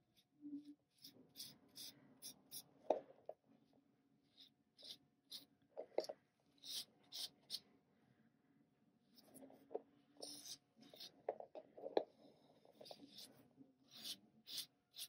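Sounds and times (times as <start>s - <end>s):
board rubbing on paper: 12.7s - 15.0s.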